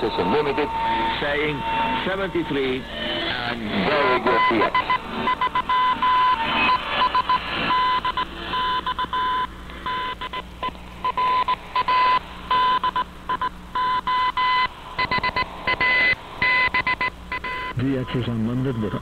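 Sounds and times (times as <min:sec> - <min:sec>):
radio hiss: 0:00.0 - 0:19.0
morse code beeps: 0:03.9 - 0:10.4, 0:11.0 - 0:19.0.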